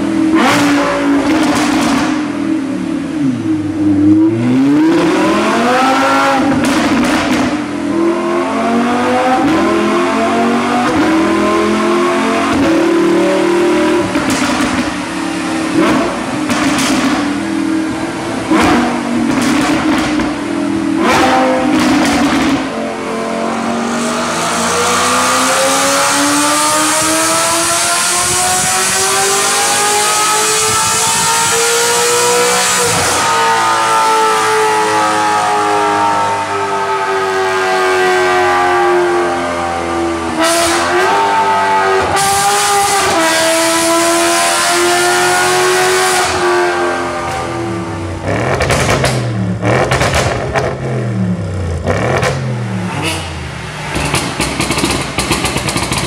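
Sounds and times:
car engine revving on dyno: 0.0 - 56.0
car engine pitch rising: 0.3 - 56.0
exhaust cracks: 14.0 - 23.0, 48.2 - 56.0.

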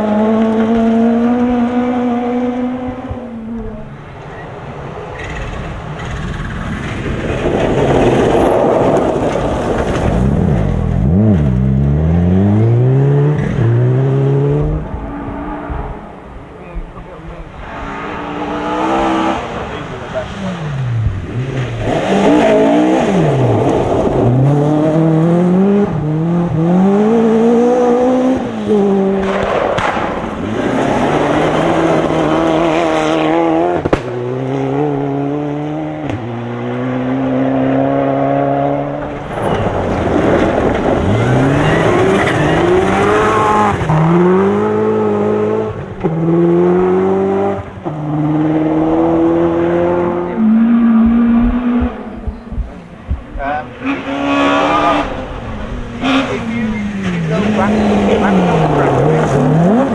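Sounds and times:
rally car engines revving: 0.0 - 59.9
tyres rushing on gravel: 39.1 - 44.0.

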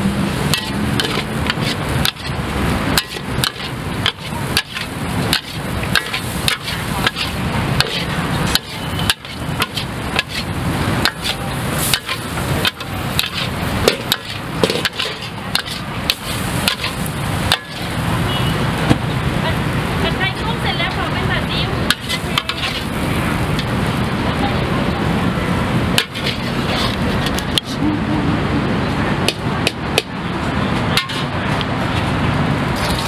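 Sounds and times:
steady rushing noise: 0.0 - 33.0
metal spatula clanking against wok: 0.5 - 2.4, 3.0 - 18.0, 21.9 - 22.9, 31.0 - 31.4.

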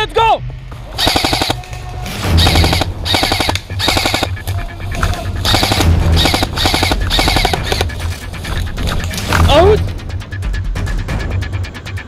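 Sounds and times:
airsoft rifle bursts: 0.9 - 1.7, 2.3 - 4.4, 5.4 - 8.0.

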